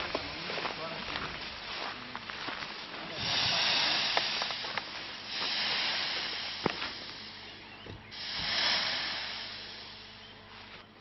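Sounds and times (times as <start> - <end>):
hot-air balloon deflating hiss: 3.1 - 7.5, 8.1 - 10.2.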